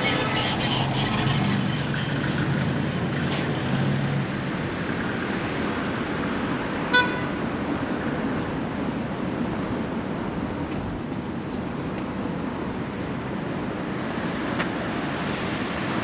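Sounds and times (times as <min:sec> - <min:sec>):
road noise: 0:00.0 - 0:16.0
vehicle engine hum: 0:00.0 - 0:16.0
car horn toot: 0:06.9 - 0:07.4.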